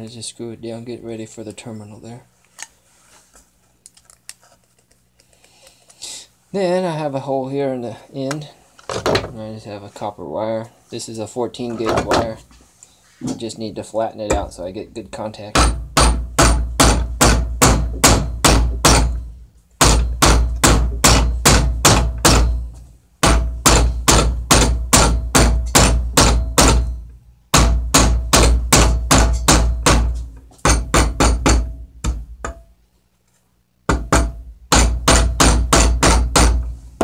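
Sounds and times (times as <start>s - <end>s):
hammer striking wire on metal: 15.5s - 32.8s, 33.9s - 36.7s.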